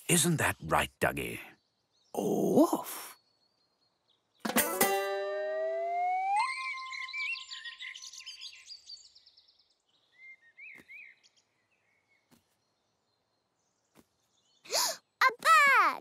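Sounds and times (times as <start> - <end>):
cartoon birdsong chirps: 5.1 - 9.2.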